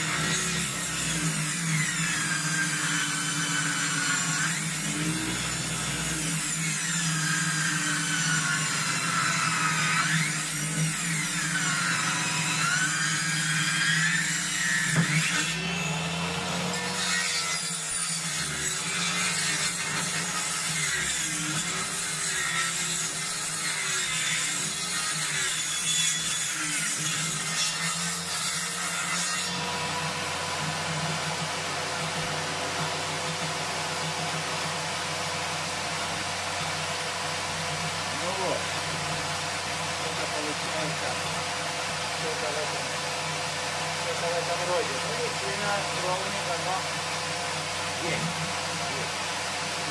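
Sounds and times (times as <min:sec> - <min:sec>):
table saw blade ripping wood: 0:00.0 - 0:41.9.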